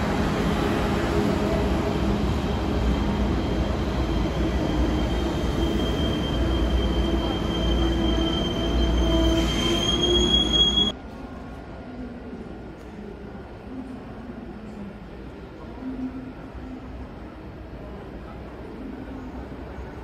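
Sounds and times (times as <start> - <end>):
train rumble with high whine: 0.0 - 11.0.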